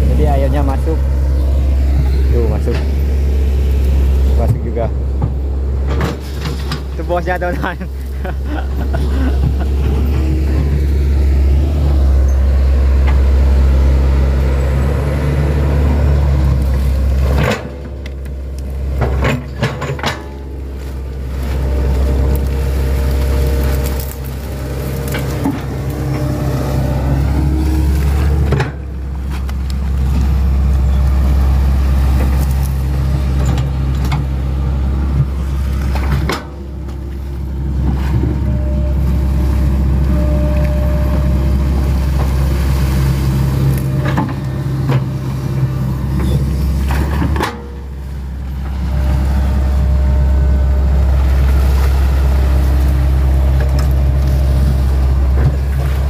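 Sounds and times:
excavator diesel engine under load: 0.0s - 56.0s.

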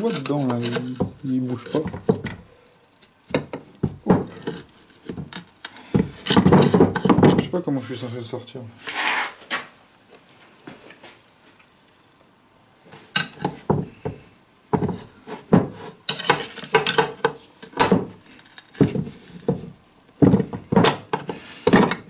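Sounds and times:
sharp metal knocks and clatter: 6.0s - 7.5s, 14.8s - 18.2s.

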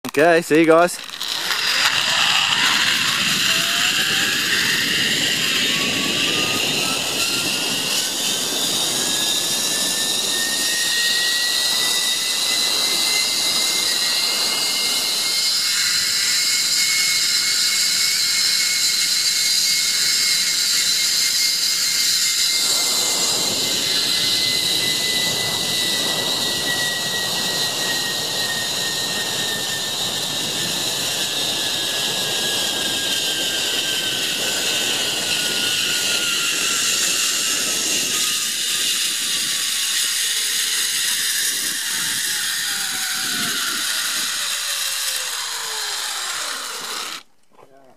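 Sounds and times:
zipline pulleys whining on cable: 0.0s - 47.5s
rush of air noise: 0.2s - 15.3s, 22.5s - 39.6s.

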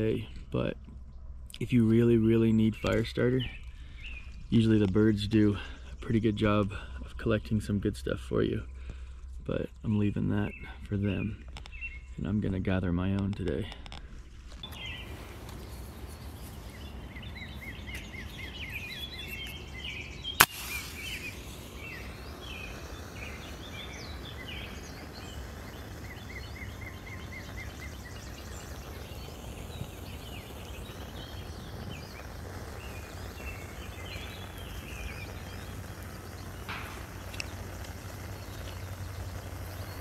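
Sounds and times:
birds singing and chirping: 0.0s - 7.2s, 8.5s - 40.0s
low outdoor rumble: 0.0s - 40.0s
match being struck: 20.4s - 25.8s, 31.2s - 38.9s.

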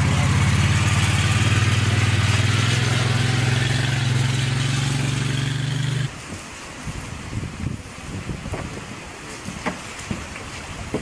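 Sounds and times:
utility vehicle engine running: 0.0s - 6.1s.

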